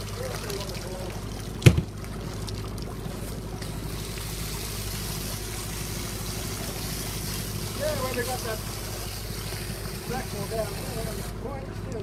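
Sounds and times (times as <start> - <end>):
boat engine idling: 0.0 - 12.0
sharp knock: 1.6 - 1.9.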